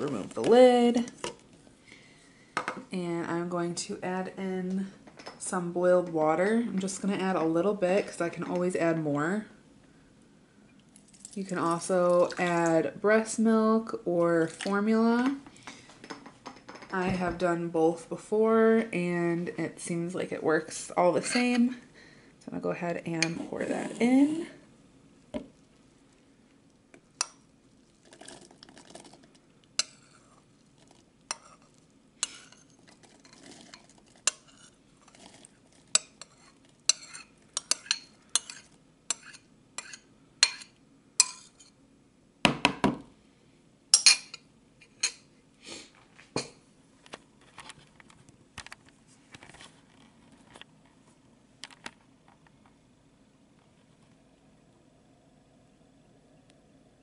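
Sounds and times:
spoon scraping a bowl: 23.2 - 24.2, 29.8 - 41.8.

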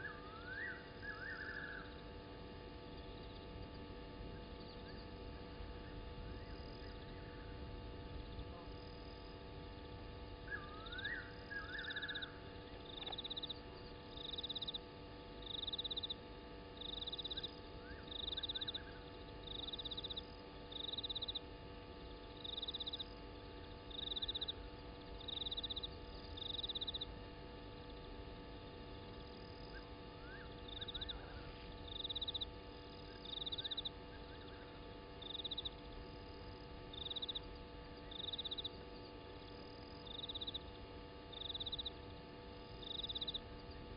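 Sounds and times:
faint electrical hum: 0.0 - 43.9
high pulsed animal chirps: 10.6 - 12.4.

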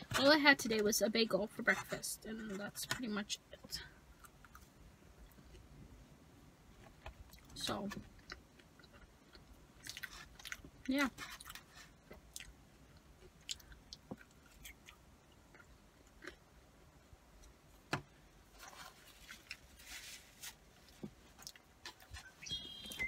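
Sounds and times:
person chewing: 4.1 - 5.7, 8.1 - 16.6, 21.3 - 22.3.

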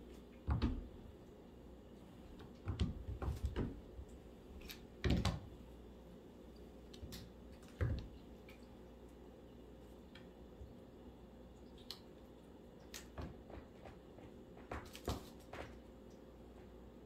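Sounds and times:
kitten paws thumping on wood floor: 13.1 - 15.9.

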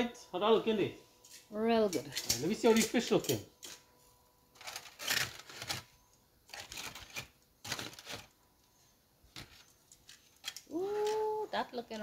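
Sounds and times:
aluminium foil crinkling: 4.6 - 12.0.

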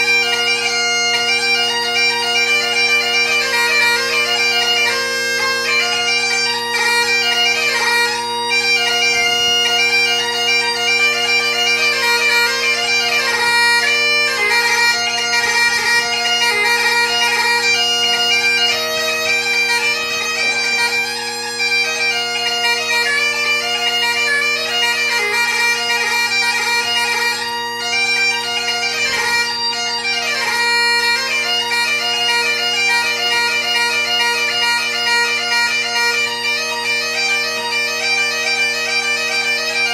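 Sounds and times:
bagpipe chanter melody: 0.0 - 39.9
bagpipe drone: 0.0 - 39.9.

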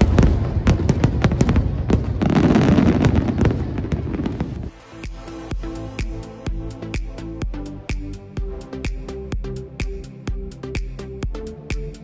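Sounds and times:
fireworks bursting and crackling: 0.0 - 6.3
electronic music with steady beat: 4.7 - 12.0.

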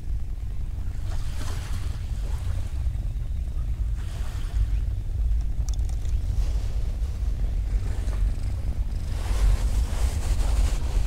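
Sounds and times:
wind rumble on microphone: 0.0 - 11.0
cat paws digging in sand: 6.1 - 11.0.

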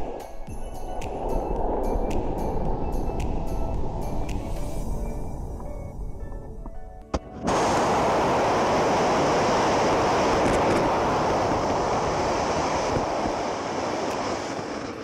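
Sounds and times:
rocket exhaust roaring: 7.4 - 15.0.

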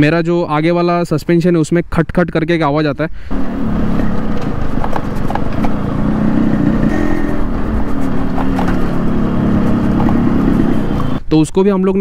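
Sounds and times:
two-stroke motorcycle engine running: 3.3 - 11.2
suspension knocking: 3.7 - 11.2.

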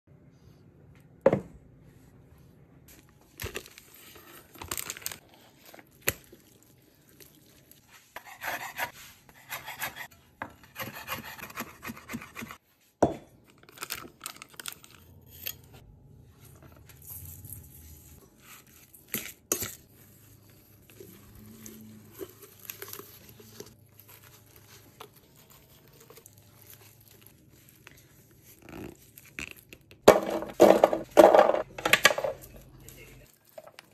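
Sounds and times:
plastic packaging crinkling: 3.2 - 7.8, 21.0 - 30.0.

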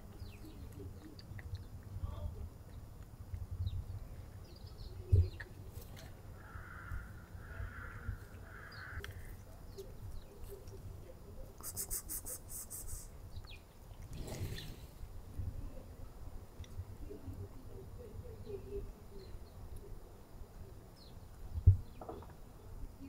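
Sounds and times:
cat chewing food: 0.1 - 3.4
bird cawing: 6.4 - 9.0.

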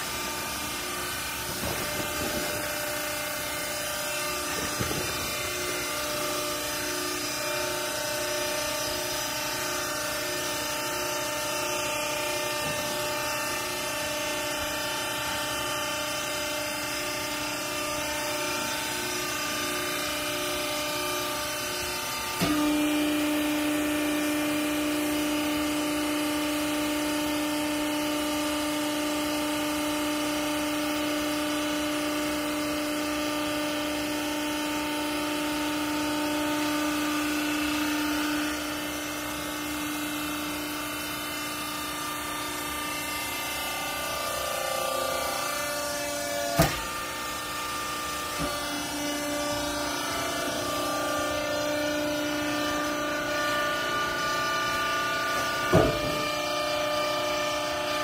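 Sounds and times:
hydraulic pump humming: 0.0 - 58.0.

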